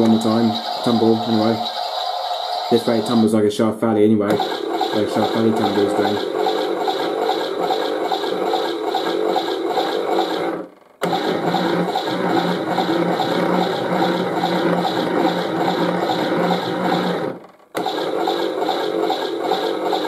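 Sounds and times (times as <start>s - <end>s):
toy washing machine tumbling: 4.3s - 20.0s.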